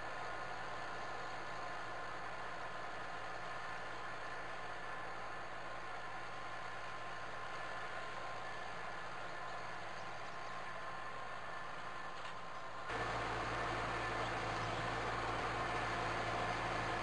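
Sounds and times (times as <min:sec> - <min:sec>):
tractor diesel engine running: 0:12.9 - 0:17.0.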